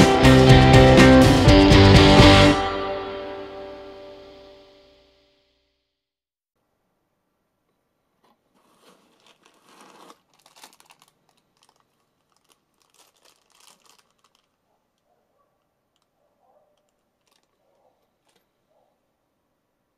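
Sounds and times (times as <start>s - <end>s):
plastic bag crinkling: 8.2s - 15.1s, 15.8s - 18.6s.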